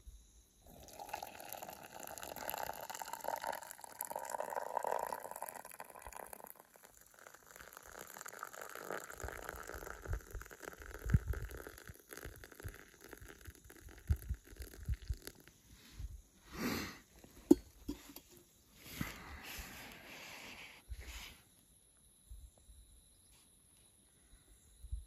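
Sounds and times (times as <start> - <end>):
water pouring into metal mug: 0.6 - 15.6
pot knocking on rock: 17.5 - 18.4.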